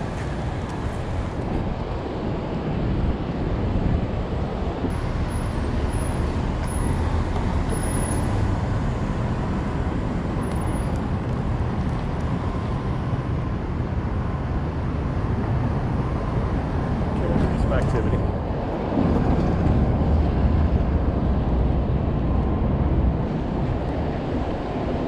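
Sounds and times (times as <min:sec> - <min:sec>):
city street traffic rumble: 0:00.0 - 0:25.0.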